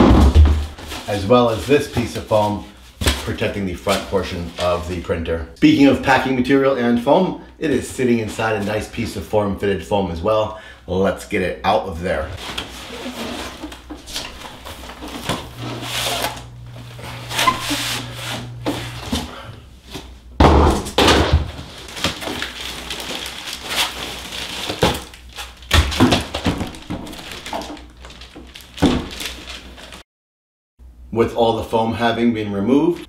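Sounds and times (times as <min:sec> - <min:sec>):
foam and plastic bag crinkling: 0:00.1 - 0:05.2, 0:12.4 - 0:20.1, 0:21.5 - 0:30.0.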